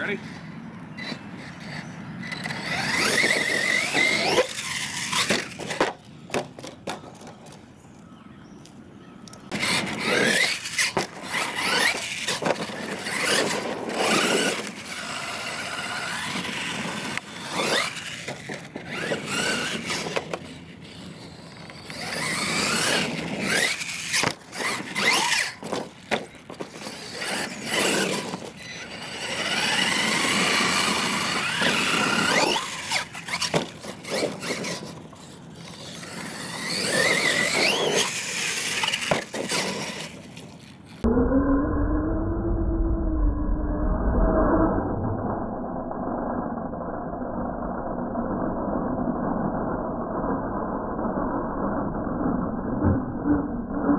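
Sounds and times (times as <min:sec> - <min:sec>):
electric motor whining: 0:00.9 - 0:06.0, 0:09.4 - 0:41.1
tyres scrabbling on dirt: 0:01.0 - 0:07.7, 0:09.4 - 0:41.0.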